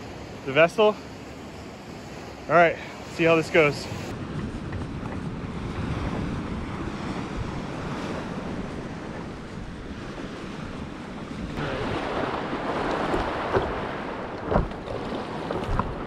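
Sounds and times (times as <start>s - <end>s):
breaking surf: 1.9s - 16.0s
wind noise on microphone: 3.7s - 16.0s
water lapping around paddleboard: 4.2s - 16.0s.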